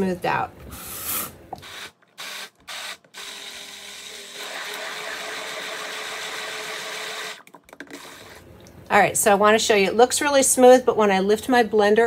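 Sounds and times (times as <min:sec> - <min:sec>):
stick blender pureeing: 0:00.9 - 0:08.4.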